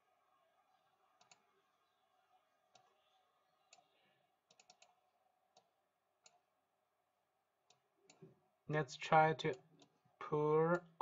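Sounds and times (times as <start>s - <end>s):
computer mouse clicks: 1.2s - 1.4s, 2.7s - 3.0s, 3.7s - 6.4s.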